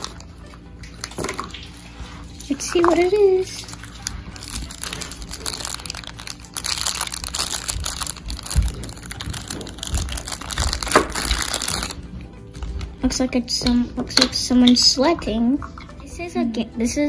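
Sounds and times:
plastic bag crinkling: 2.7 - 13.1.

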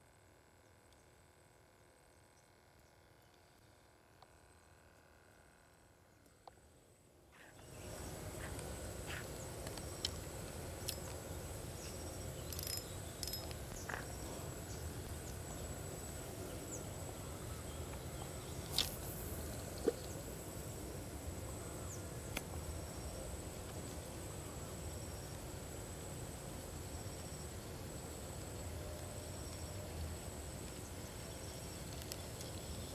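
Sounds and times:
insect trill: 7.6 - 32.9
small clicks and ticks: 8.4 - 14.2, 31.4 - 32.9.

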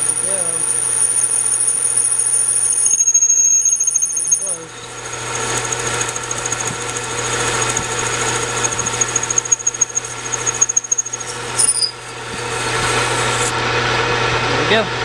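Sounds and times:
high-pitched cutting squeal: 0.0 - 13.5
metal lathe running: 0.0 - 14.4
falling whine: 0.0 - 14.6.

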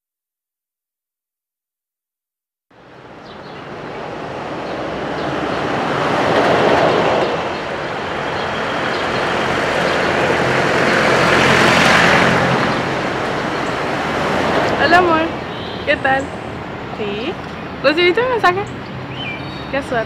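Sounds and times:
street traffic rumble: 2.7 - 20.0.

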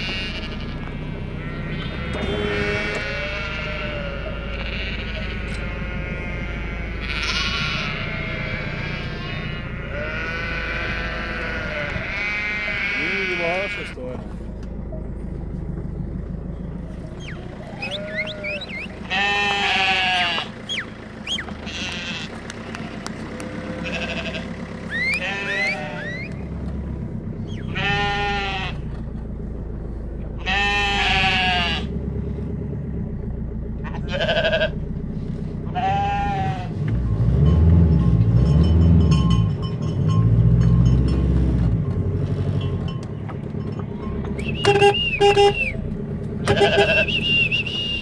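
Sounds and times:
sheep bleating: 0.0 - 14.1, 17.2 - 26.6, 27.5 - 29.0, 30.4 - 31.9, 33.8 - 34.9, 35.6 - 36.8, 46.4 - 48.0
car engine humming: 0.0 - 48.0.

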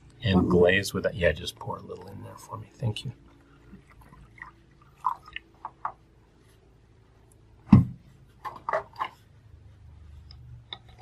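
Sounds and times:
water pouring into a bowl: 3.7 - 5.6.

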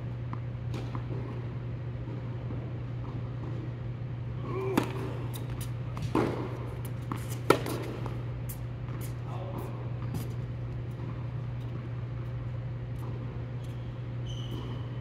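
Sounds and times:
steady low hum: 0.0 - 15.0
tennis ball hit by racket: 4.6 - 8.2.

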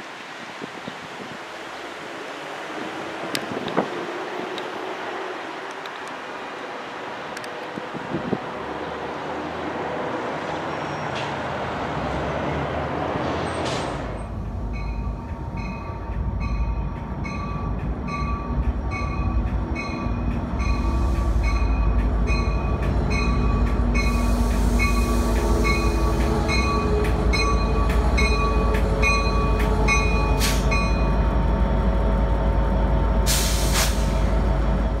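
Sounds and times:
diesel locomotive rumbling: 0.0 - 35.0
traffic noise: 0.0 - 35.0
wind: 0.0 - 35.0
locomotive bell ringing: 14.6 - 31.3
air hiss: 24.0 - 26.0, 33.3 - 34.3.

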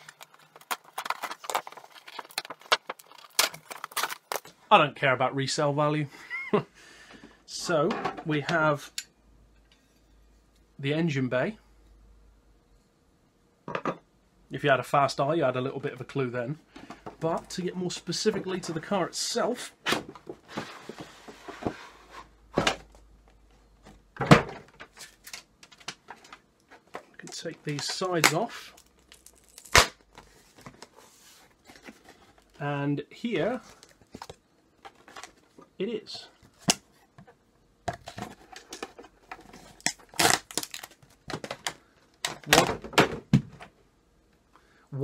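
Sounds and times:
handling plastic model car: 0.0 - 4.5.

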